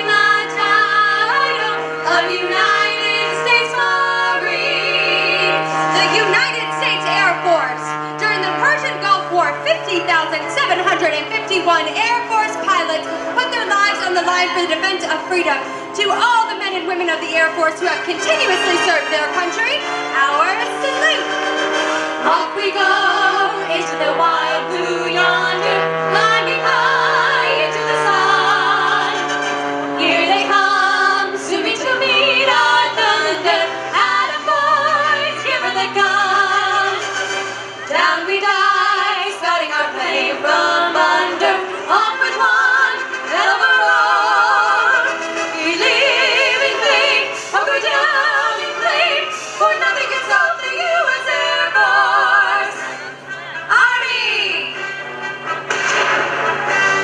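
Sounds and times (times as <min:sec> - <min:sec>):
operatic solo singing: 0:00.0 - 0:54.8
sustained chords: 0:00.0 - 0:57.0
person singing: 0:22.2 - 0:29.2.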